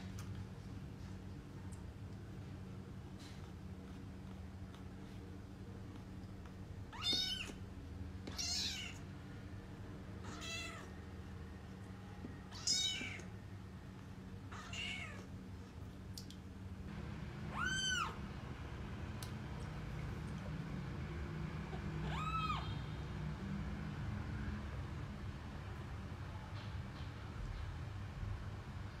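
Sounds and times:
kitten mewing: 10.2s - 10.9s, 17.5s - 18.2s, 22.0s - 22.9s.

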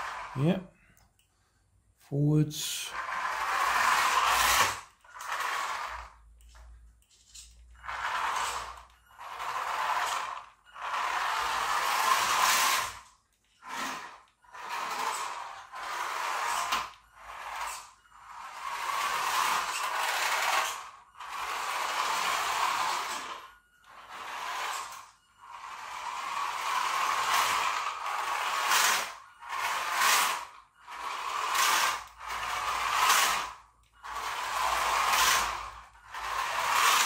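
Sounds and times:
toy car electric motor whirring: 0.0s - 0.4s, 2.8s - 37.0s
tyres on laminate floor: 0.0s - 37.0s.

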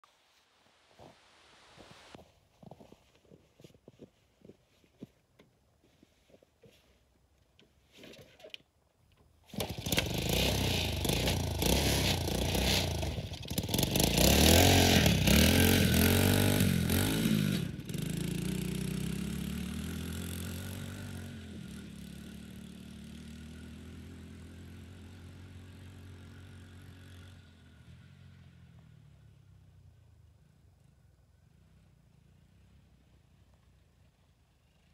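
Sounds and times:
riding mower engine revving: 9.5s - 29.0s.

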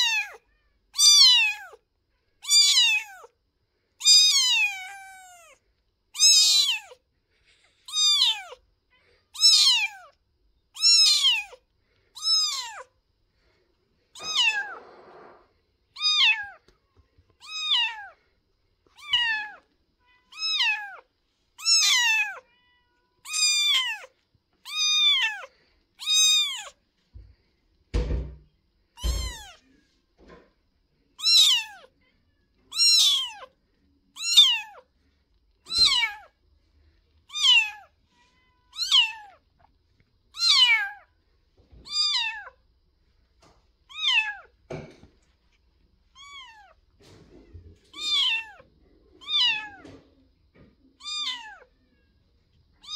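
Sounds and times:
kitten meowing: 0.0s - 1.8s, 2.4s - 3.3s, 4.0s - 7.0s, 7.9s - 8.6s, 9.3s - 10.2s, 10.8s - 11.6s, 12.2s - 12.9s, 14.2s - 16.7s, 17.4s - 18.2s, 18.9s - 26.8s, 29.0s - 29.6s, 31.2s - 31.9s, 32.6s - 33.5s, 34.2s - 34.8s, 35.6s - 36.3s, 37.3s - 39.4s, 40.3s - 41.0s, 41.8s - 42.6s, 43.9s - 44.5s, 46.2s - 46.8s, 47.9s - 48.6s, 49.2s - 50.0s, 51.0s - 51.8s.

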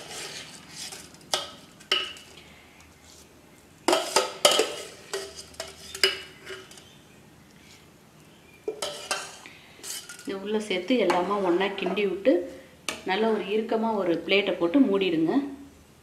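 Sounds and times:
metal spoon scraping metal pan: 0.0s - 2.2s, 3.9s - 6.8s, 8.7s - 10.4s.

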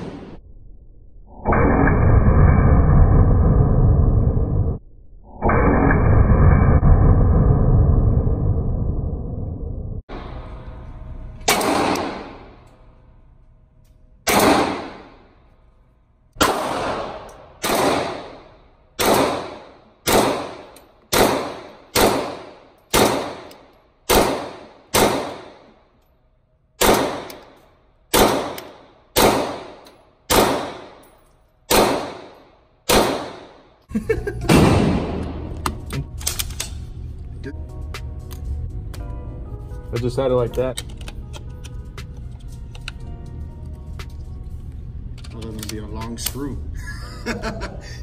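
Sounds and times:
gunshots echoing indoors: 0.0s - 0.4s, 11.4s - 13.0s, 14.2s - 15.8s, 16.4s - 26.0s, 26.8s - 33.8s, 34.4s - 36.6s.

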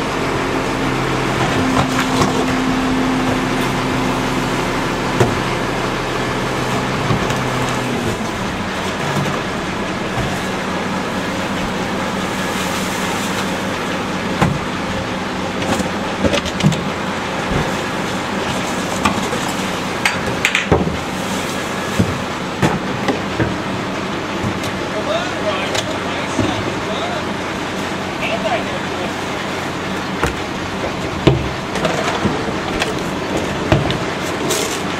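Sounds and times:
garbage truck engine running: 0.0s - 34.9s
trash cans knocking and banging: 5.0s - 5.7s, 6.4s - 12.5s, 13.3s - 27.0s, 29.6s - 34.9s
trash dropping in: 6.7s - 25.0s, 29.6s - 34.9s.

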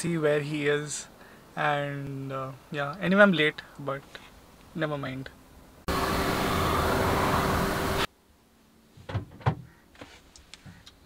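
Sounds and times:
car road and wind noise: 5.5s - 8.1s.

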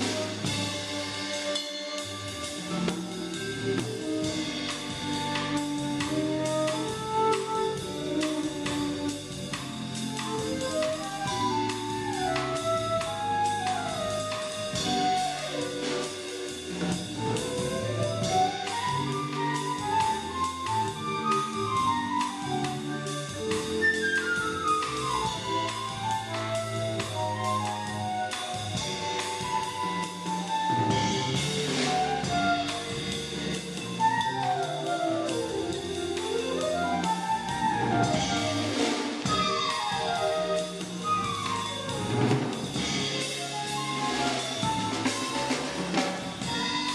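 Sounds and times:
drum kit with cymbals: 0.0s - 46.9s
jazz band playing: 0.0s - 46.9s
sliding melody line: 0.0s - 46.9s
walking upright bass: 0.0s - 46.9s.

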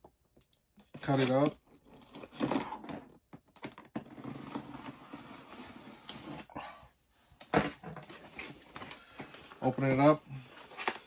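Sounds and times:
knife cutting cardboard: 1.9s - 6.5s.

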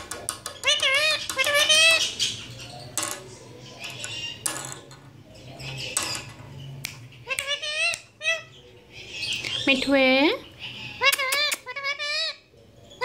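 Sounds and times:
parakeet chatter: 0.0s - 13.0s
parakeet talking: 0.4s - 2.5s, 7.2s - 12.5s.

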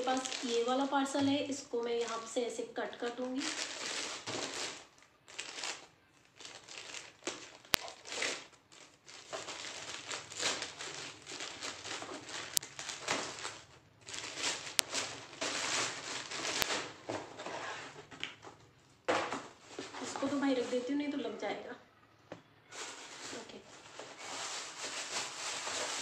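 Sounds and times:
plastic bag crinkling: 0.0s - 21.4s, 22.6s - 26.0s
scissors cutting plastic: 7.2s - 8.5s.

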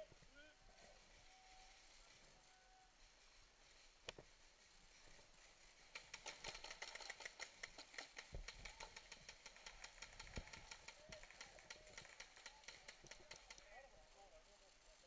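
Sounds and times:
paintball markers firing: 6.0s - 13.7s.

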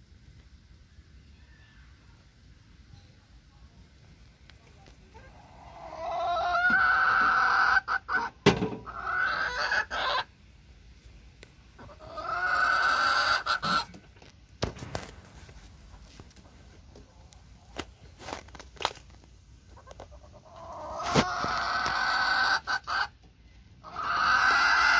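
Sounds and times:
chicken crowing: 5.6s - 8.1s, 8.8s - 10.3s, 12.0s - 13.9s, 23.8s - 24.9s.

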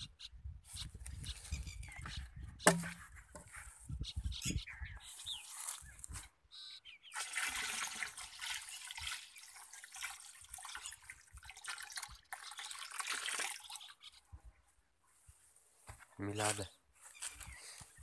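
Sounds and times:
water pouring into a drum: 7.1s - 13.9s.

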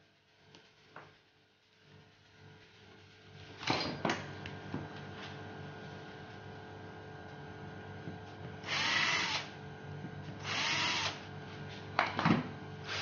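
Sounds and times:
cordless drill driving screws: 8.7s - 9.5s, 10.4s - 11.2s.

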